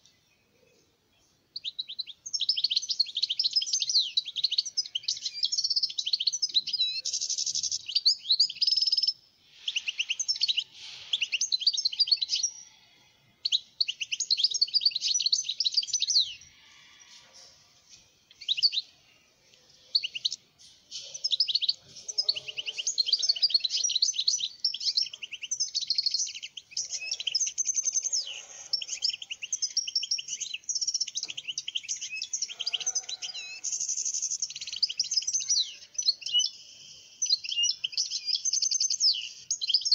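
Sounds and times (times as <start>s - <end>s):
goldfinch twittering song: 19.9s - 39.9s.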